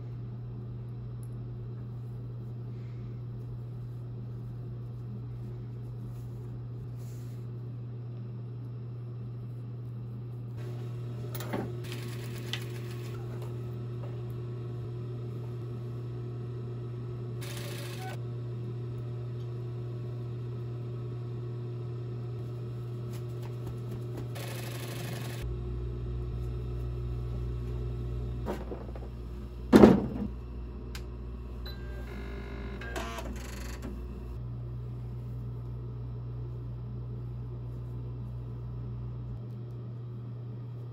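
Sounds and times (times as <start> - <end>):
low electrical hum: 0.0 - 40.9
electronic motor whirs and clicks: 17.4 - 18.2, 24.3 - 25.5, 31.7 - 34.1.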